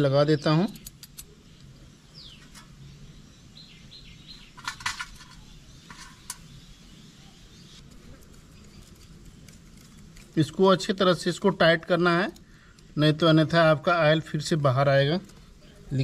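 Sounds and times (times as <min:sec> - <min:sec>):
bird chirps: 0:00.0 - 0:07.9
metallic screw clicks and rattles: 0:00.7 - 0:01.4.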